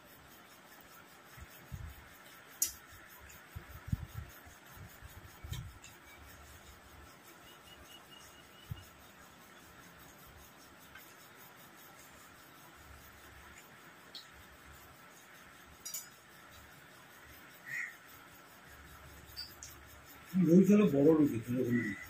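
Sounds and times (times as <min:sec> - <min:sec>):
sharp click: 0:02.6 - 0:02.8.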